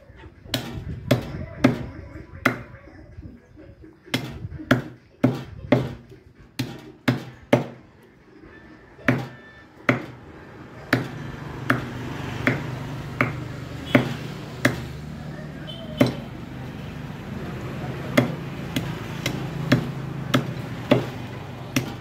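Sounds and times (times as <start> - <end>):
cleaver chopping on wooden block: 0.5 - 2.6, 4.1 - 7.8, 9.1 - 10.2, 10.9 - 14.9, 15.9 - 16.3, 18.1 - 22.0.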